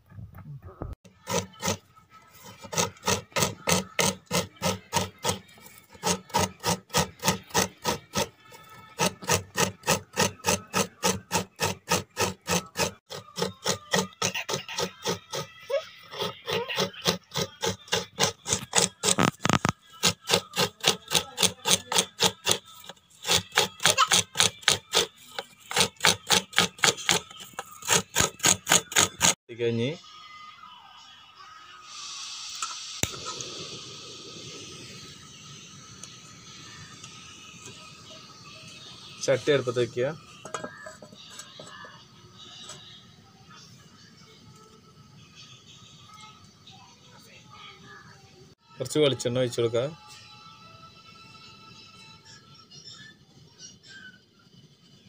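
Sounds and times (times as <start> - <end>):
coconut grating rasping scrapes: 1.1 - 29.4.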